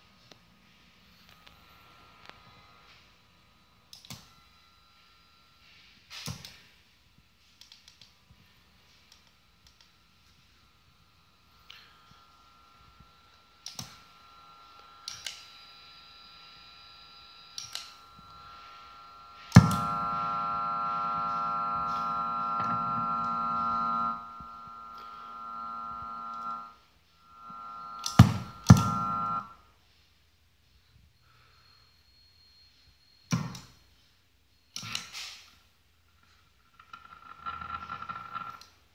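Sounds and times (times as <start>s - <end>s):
electrical buzzing whine: 1.0s - 6.6s, 9.4s - 29.7s.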